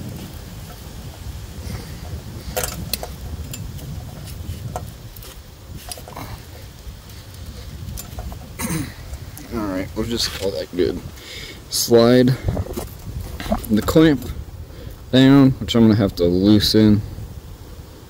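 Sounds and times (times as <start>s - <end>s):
wind buffeting microphone: 0.0s - 18.0s
clicks and knocks of hose: 0.1s - 10.6s.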